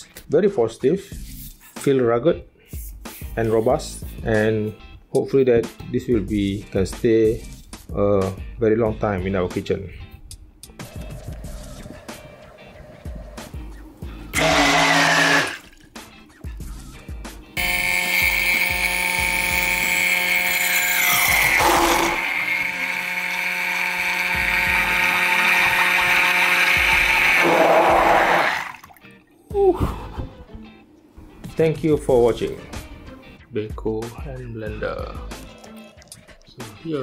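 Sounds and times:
hand blender motor whining: 0:14.3 - 0:15.8, 0:17.6 - 0:28.8
water churning: 0:27.1 - 0:29.1.

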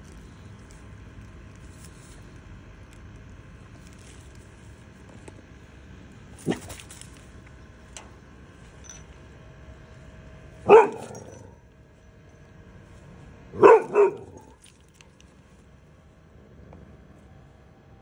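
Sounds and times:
dog barking: 0:10.6 - 0:11.6, 0:13.5 - 0:14.6.

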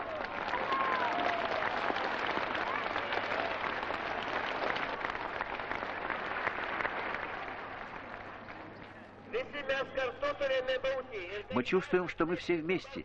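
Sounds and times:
crowd clapping: 0:00.0 - 0:08.8.

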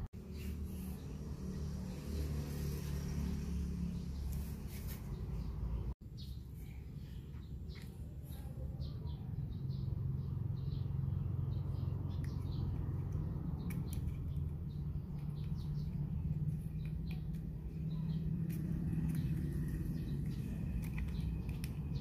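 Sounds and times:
low background hum: 0:05.0 - 0:22.0.

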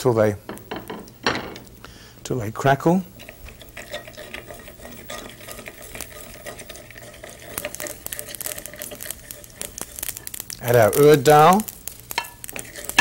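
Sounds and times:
wooden spoon stirring: 0:02.3 - 0:13.0
seeds crackling and popping in oil: 0:02.6 - 0:13.0.

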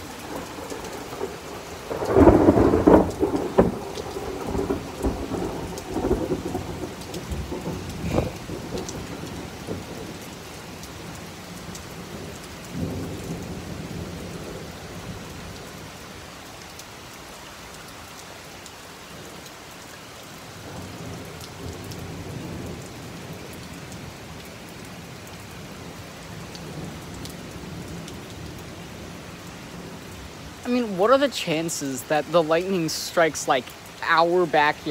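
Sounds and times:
thunder rumbling: 0:00.0 - 0:10.2, 0:12.0 - 0:15.2
heavy rain: 0:00.0 - 0:34.9.

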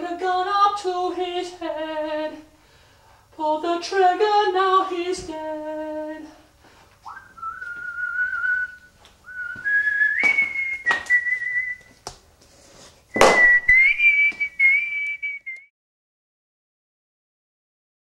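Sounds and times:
man whistling a slow tune: 0:07.0 - 0:12.0, 0:13.1 - 0:15.7.

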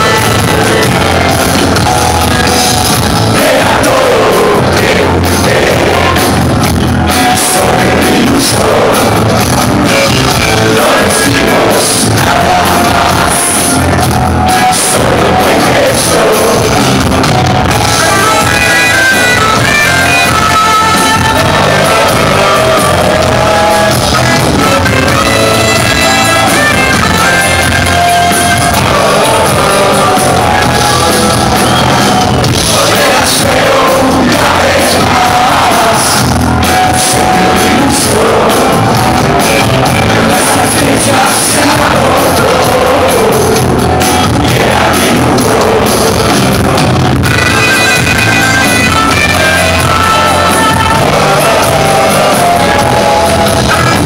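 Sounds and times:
bass guitar: 0:00.0 - 0:54.0
drums: 0:00.0 - 0:54.0
electric guitars: 0:00.0 - 0:54.0
keyboard: 0:00.0 - 0:54.0
person singing: 0:00.0 - 0:54.0
saxophone: 0:47.2 - 0:52.7.

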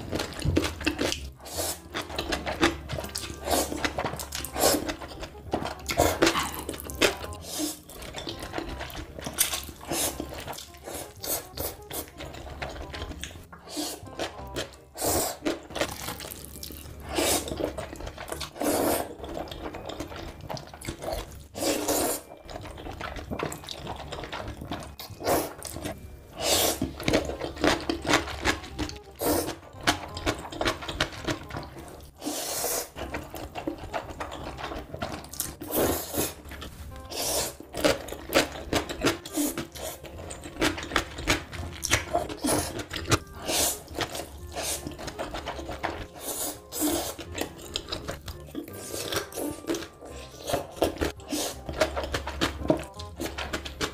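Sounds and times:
person slurping noodles: 0:01.3 - 0:01.9, 0:03.1 - 0:05.0, 0:05.9 - 0:12.4, 0:13.6 - 0:14.3, 0:14.9 - 0:16.4, 0:17.0 - 0:19.5, 0:21.0 - 0:22.3, 0:24.8 - 0:25.8, 0:26.4 - 0:27.4, 0:29.2 - 0:29.6, 0:31.9 - 0:34.5, 0:35.6 - 0:36.4, 0:37.0 - 0:40.6, 0:41.8 - 0:52.5.

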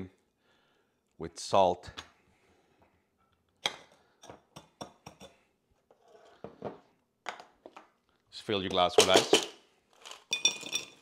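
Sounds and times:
glass and plate clinking: 0:10.3 - 0:11.0.

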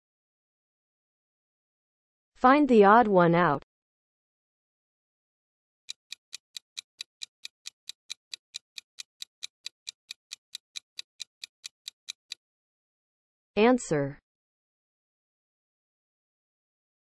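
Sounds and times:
clock ticking: 0:05.9 - 0:12.4.

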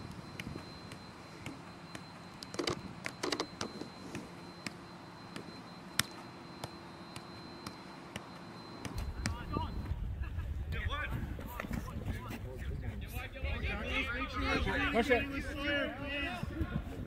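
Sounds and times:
soccer ball taps: 0:04.6 - 0:09.4.

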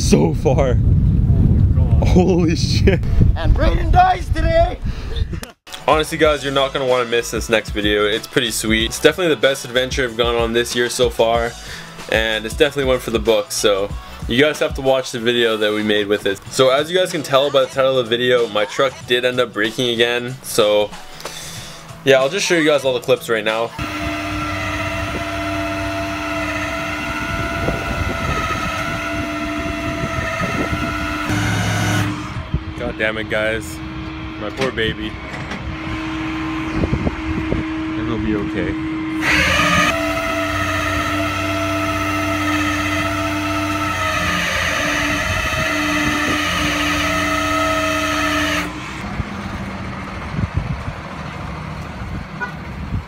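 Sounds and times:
hydraulic winch whine: 0:23.7 - 0:50.4
truck engine rumble: 0:23.7 - 0:53.0.

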